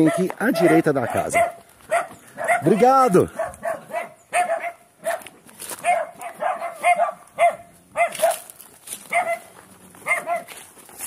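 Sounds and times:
dog barking: 0:00.0 - 0:10.6.

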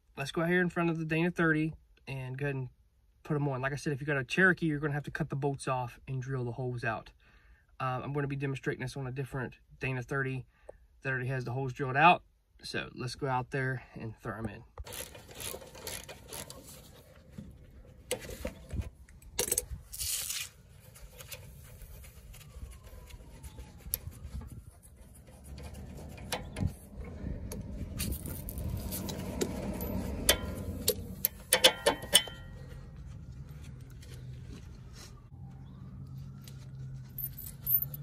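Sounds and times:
low rumble: 0:21.7 - 0:31.5.

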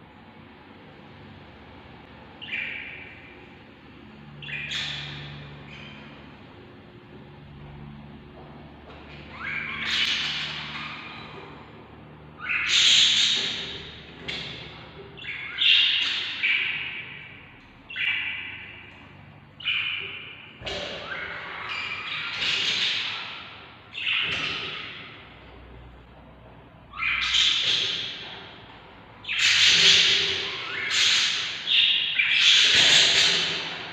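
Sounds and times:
budgerigars squawking: 0:04.4 - 0:06.0, 0:09.3 - 0:11.6, 0:12.4 - 0:17.3, 0:19.6 - 0:25.2, 0:26.9 - 0:28.6, 0:29.2 - 0:33.9.

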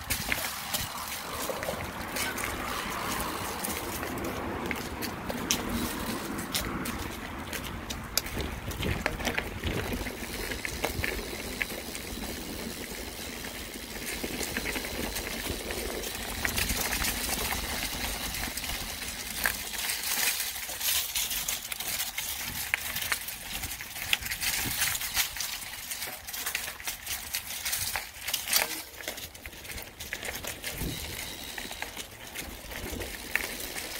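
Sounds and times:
wind rumble on microphone: 0:00.0 - 0:19.6, 0:21.8 - 0:25.6, 0:29.6 - 0:33.9
bike clicks and rattles: 0:00.0 - 0:33.9
bike tyres on dirt trail: 0:00.0 - 0:33.9.

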